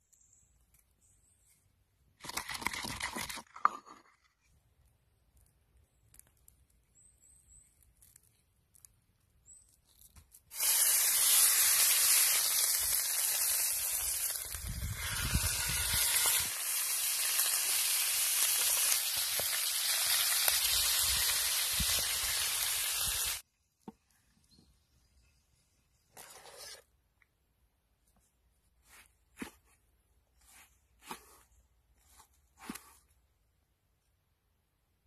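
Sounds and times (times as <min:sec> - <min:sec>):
steak sizzling in skillet: 0:10.5 - 0:23.4.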